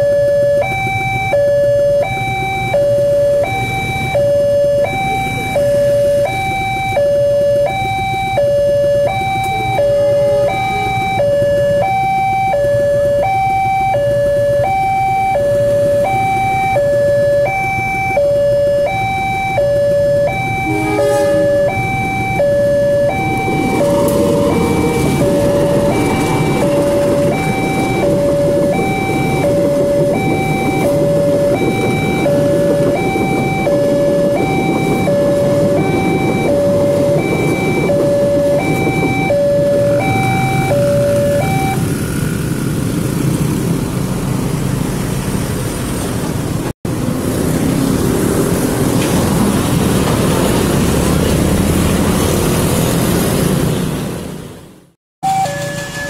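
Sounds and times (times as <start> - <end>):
level crossing two-tone alarm: 0.0 - 41.9, 55.2 - 56.0
train rumbling past: 20.1 - 56.0.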